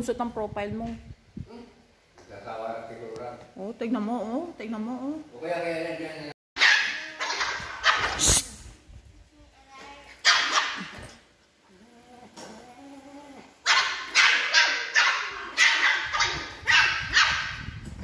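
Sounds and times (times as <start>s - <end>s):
puppy barking: 6.6s - 8.2s, 10.2s - 11.0s, 13.6s - 17.7s.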